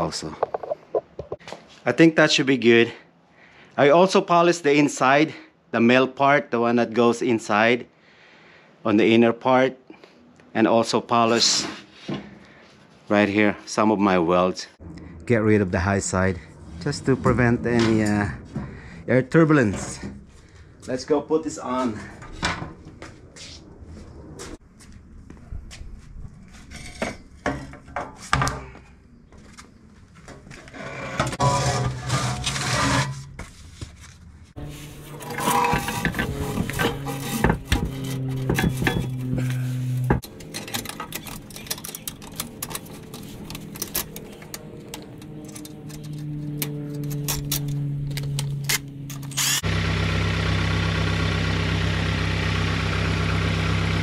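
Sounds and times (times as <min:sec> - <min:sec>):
car engine idling: 0:34.7 - 0:54.0
metal tools clanking: 0:35.0 - 0:49.6.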